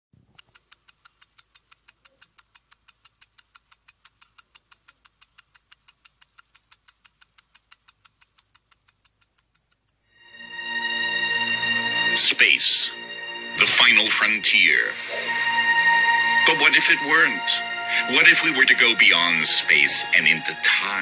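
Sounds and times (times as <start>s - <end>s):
pocket watch ticking: 0.2s - 10.1s.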